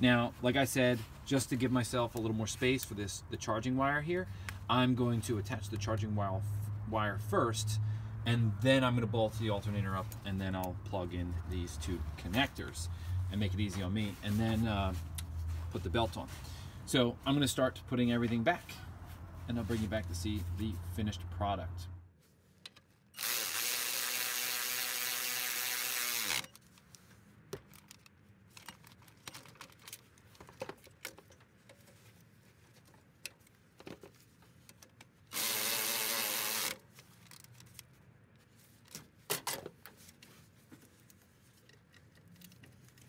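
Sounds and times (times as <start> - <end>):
cordless ratchet motor whirring: 23.2 - 26.6, 35.3 - 36.8.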